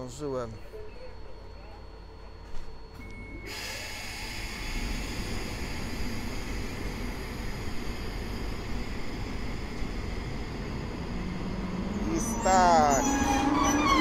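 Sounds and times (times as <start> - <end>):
electric locomotive rushing noise: 3.9 - 14.0
short rising whine: 4.3 - 14.0.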